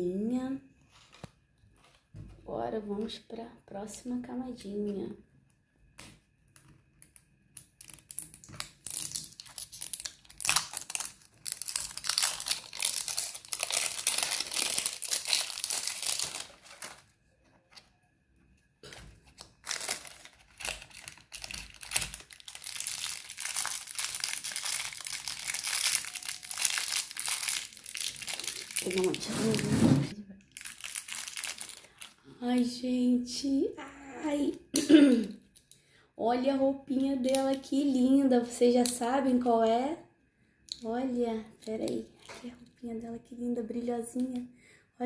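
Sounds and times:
plastic packaging crinkling: 0:07.6 - 0:17.9, 0:18.8 - 0:32.7.

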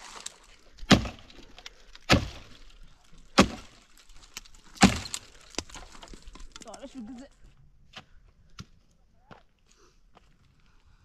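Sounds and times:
axe chopping tree trunk: 0:00.8 - 0:01.4, 0:02.0 - 0:02.6, 0:03.3 - 0:03.8, 0:04.8 - 0:06.0.

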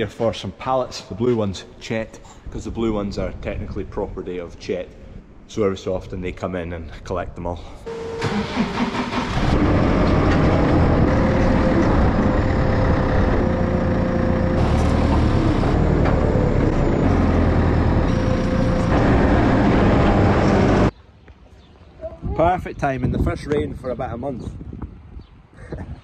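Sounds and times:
diesel loader engine running: 0:07.9 - 0:20.9.

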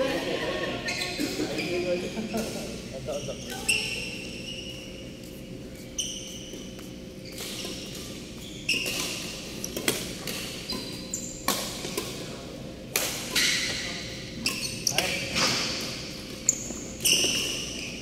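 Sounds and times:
shoes squeaking on court: 0:00.8 - 0:12.2, 0:13.3 - 0:18.0
rackets hitting shuttlecock: 0:07.4 - 0:12.2.

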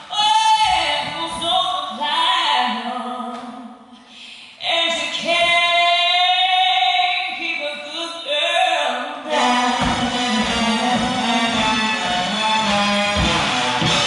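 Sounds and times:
woman singing: 0:00.0 - 0:11.9
song accompaniment: 0:09.2 - 0:14.0.

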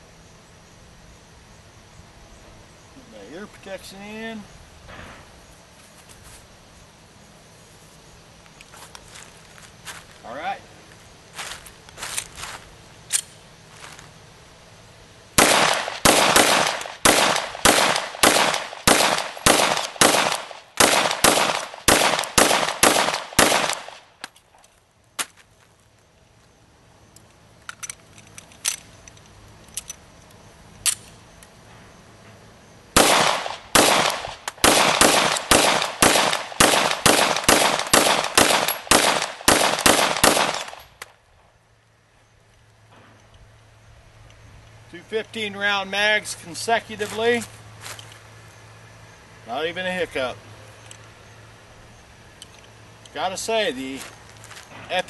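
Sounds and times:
pistol shots: 0:15.4 - 0:24.1, 0:33.0 - 0:40.9.

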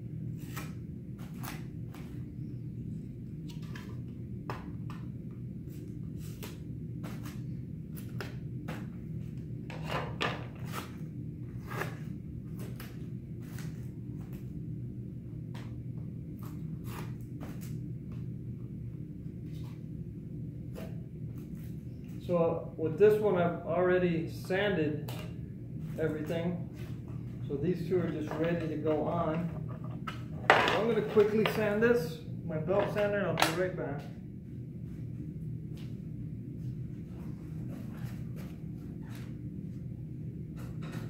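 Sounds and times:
low hum: 0:10.4 - 0:41.0.

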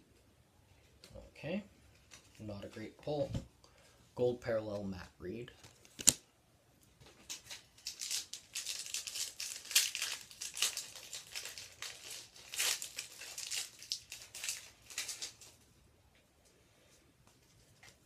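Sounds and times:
wrapper torn open and crinkled: 0:07.3 - 0:15.6.

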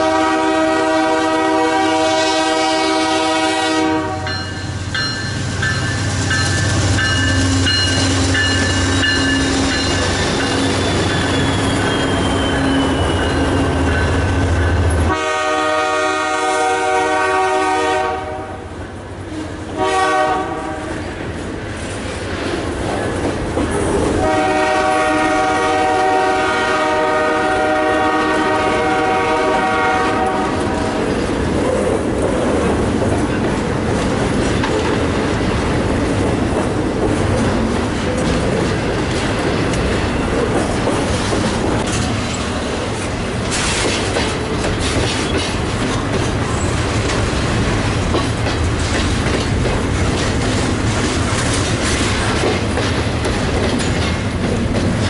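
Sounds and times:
train horn blasts: 0:00.0 - 0:04.6, 0:15.0 - 0:18.7, 0:19.3 - 0:21.0, 0:24.2 - 0:31.0
diesel locomotives rumbling: 0:00.0 - 0:55.0
freight cars clattering over rails: 0:30.6 - 0:55.0.

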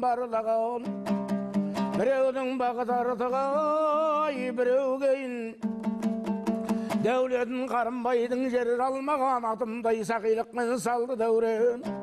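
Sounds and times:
strummed lute: 0:00.0 - 0:12.0.

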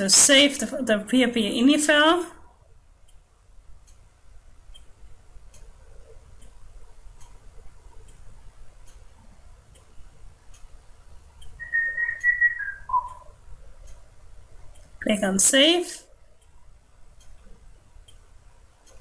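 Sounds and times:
faint clock ticking: 0:00.0 - 0:19.0
high whistle: 0:11.6 - 0:13.3.

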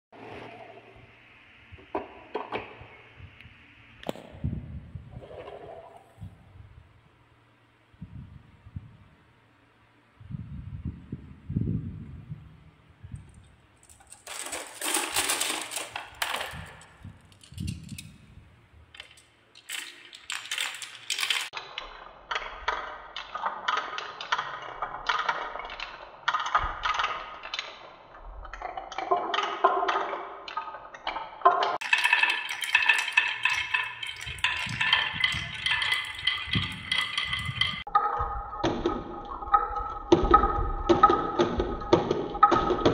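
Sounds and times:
marbles clattering on wooden tracks: 0:13.8 - 0:18.2, 0:18.9 - 0:27.8, 0:28.4 - 0:42.9.

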